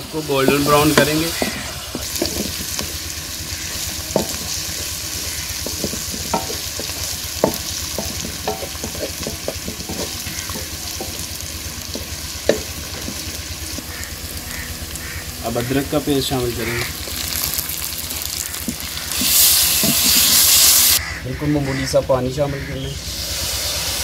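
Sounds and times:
spatula scraping pan: 0.0 - 14.1
onions sizzling in oil: 0.0 - 21.0, 23.0 - 24.0
spatula knocking on pan: 0.4 - 15.8.

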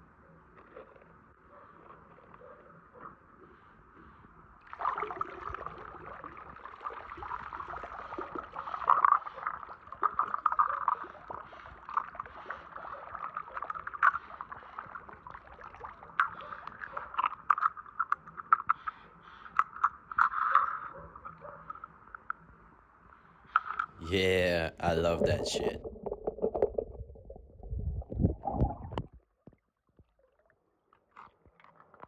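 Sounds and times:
water sloshing and dripping: 4.6 - 22.4.

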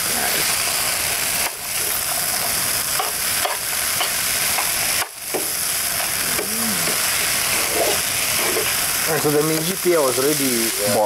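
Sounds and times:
food sizzling in a frying pan: 0.0 - 11.0
utensil scraping a pan: 6.8 - 8.9.

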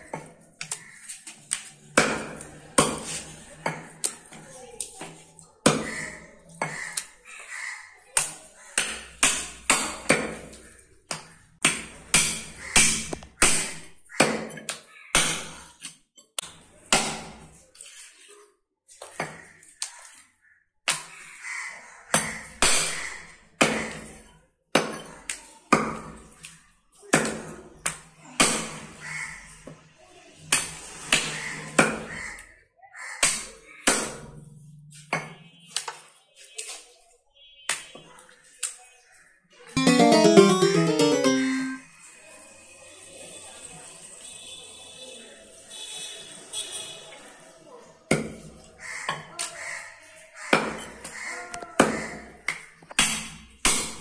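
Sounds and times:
cleaver chopping meat and bone: 11.6 - 15.6, 33.2 - 34.3.

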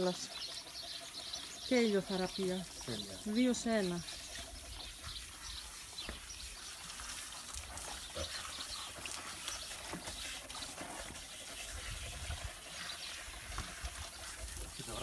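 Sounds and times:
hose water spraying: 0.0 - 15.0
water trickling into tub: 0.0 - 15.0.

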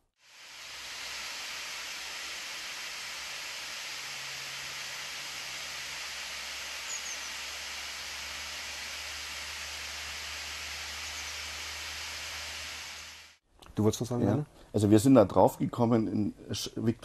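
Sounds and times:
rushing hiss: 0.1 - 13.4.

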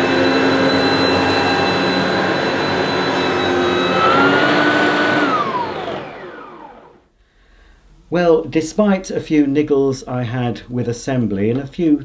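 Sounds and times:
vacuum cleaner motor whining down: 0.0 - 7.0.

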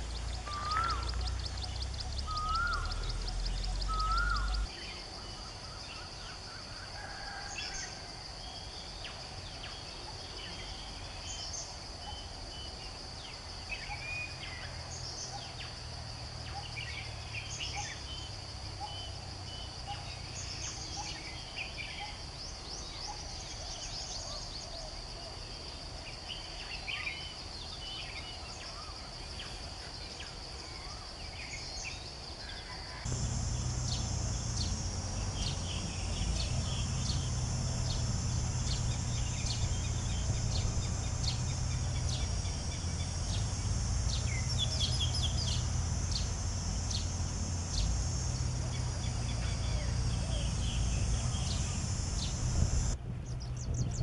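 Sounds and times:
birds chirping and whistling: 0.0 - 4.7, 33.1 - 52.9
high-pitched drone: 33.1 - 53.0.

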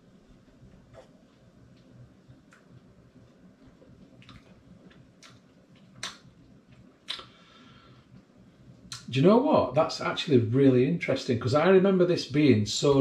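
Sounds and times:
mouth and lip smacks: 3.6 - 7.3
sharp mouth clicks: 6.0 - 6.3, 7.0 - 7.3.

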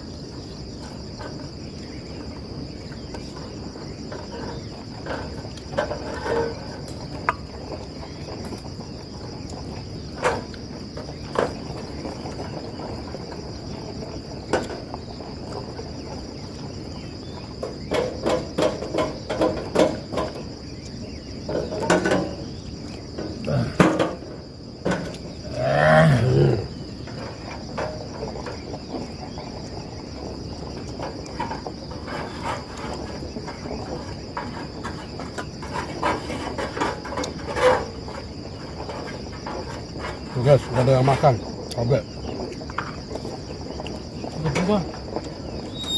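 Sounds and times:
crickets chirring: 0.0 - 45.9.

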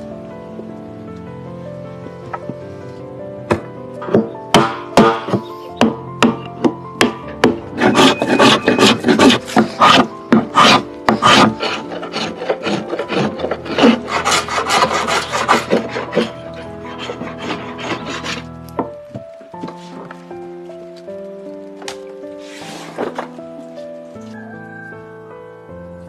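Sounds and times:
faint background music: 0.0 - 26.0
hammer knocks: 3.5 - 11.3
hand plane shaving wood: 7.0 - 18.5.

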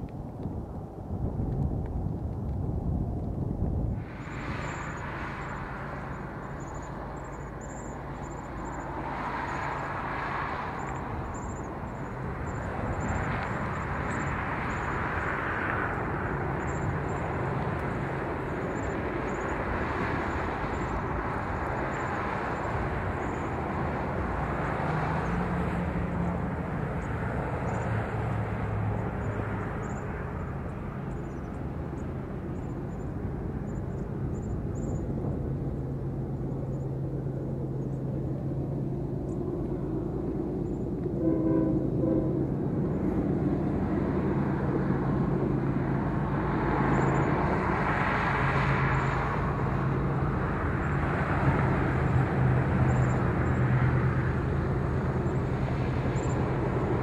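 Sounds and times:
distant diesel locomotive drone: 0.0 - 57.0
train rumble: 0.0 - 57.0.

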